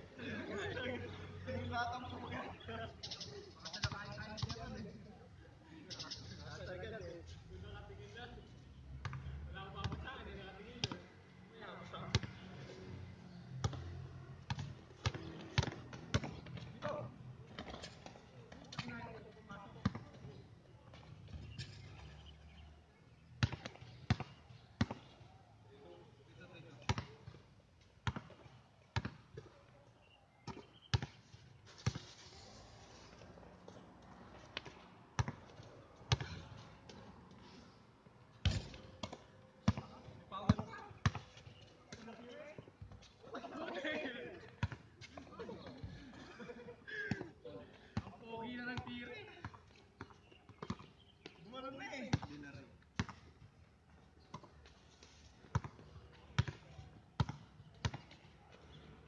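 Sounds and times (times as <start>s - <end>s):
basketball bouncing on hard court: 14.5s - 16.9s, 19.8s - 20.1s, 23.4s - 25.1s, 26.9s - 27.2s, 28.0s - 29.5s, 34.6s - 35.5s, 36.1s - 36.4s, 38.4s - 39.9s, 40.5s - 41.4s, 44.6s - 44.8s, 49.5s - 50.9s, 52.1s - 52.3s, 53.0s - 53.3s, 55.5s - 55.8s, 56.4s - 58.2s.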